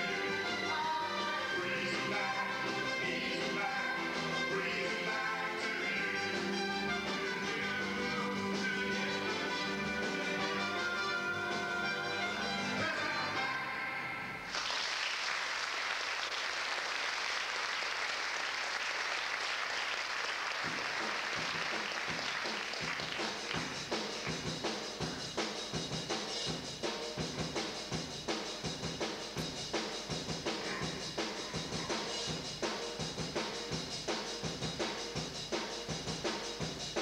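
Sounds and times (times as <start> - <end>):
drum kit beat: 0.0 - 12.8, 20.6 - 37.0
audience applauding: 14.5 - 24.5.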